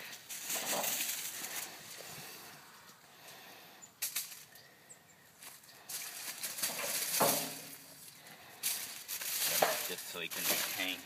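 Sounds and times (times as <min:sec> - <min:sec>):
aluminum foil crinkling: 0:05.5 - 0:11.0.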